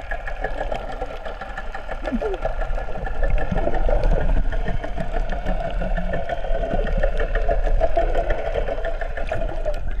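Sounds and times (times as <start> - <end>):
engine humming underwater: 0.0 - 10.0.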